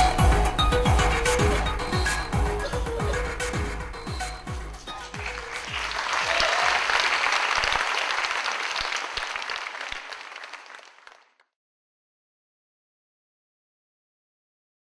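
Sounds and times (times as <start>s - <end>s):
audience applauding: 4.9s - 11.5s.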